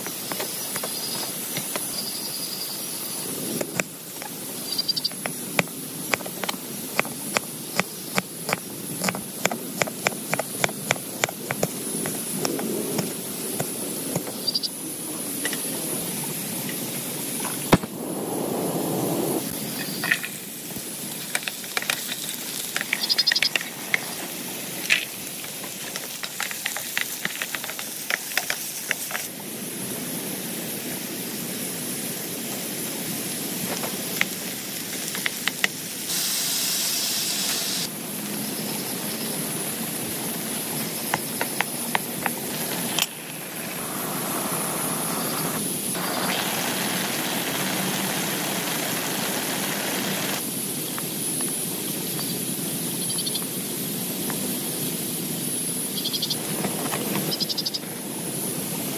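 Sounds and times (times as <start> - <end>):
heavy rain hissing on tent: 23.6 - 52.6.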